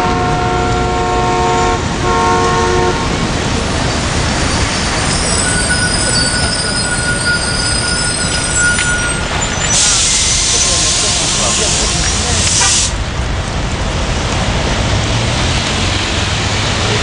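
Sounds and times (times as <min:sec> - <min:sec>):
two-note vehicle horn: 0:00.0 - 0:03.1
traffic on wet road: 0:00.0 - 0:17.0
thin high whine: 0:05.0 - 0:10.8.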